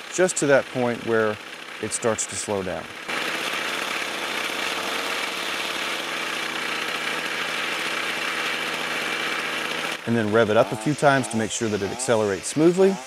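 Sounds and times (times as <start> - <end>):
string trimmer engine running: 0.0 - 13.0.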